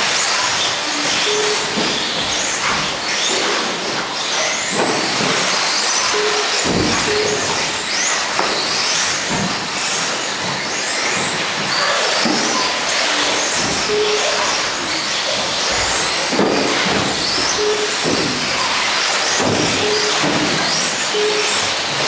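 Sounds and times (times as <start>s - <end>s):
rc car motors whining: 0.0s - 22.0s
short beeps: 1.2s - 1.8s, 6.1s - 7.7s, 13.9s - 14.7s, 17.5s - 18.7s, 19.7s - 20.5s, 21.1s - 21.8s.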